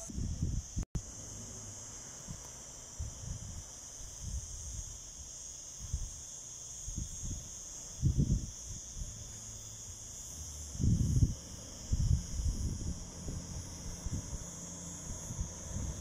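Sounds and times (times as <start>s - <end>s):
insects chirring: 0.0s - 16.0s
wind buffeting the microphone: 0.1s - 0.8s, 6.9s - 9.2s, 10.7s - 16.0s.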